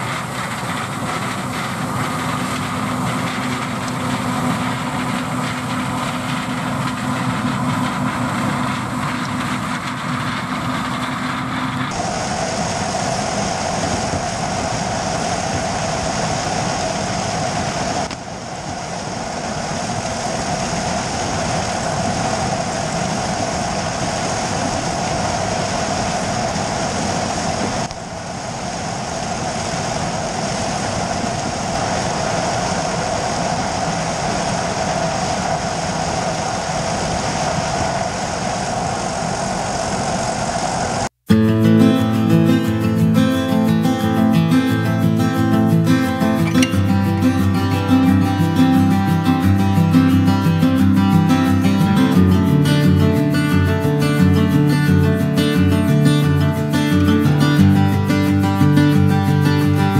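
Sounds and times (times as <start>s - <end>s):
constant mechanical whine: 0.0s - 41.3s
combine harvester running: 0.0s - 59.9s.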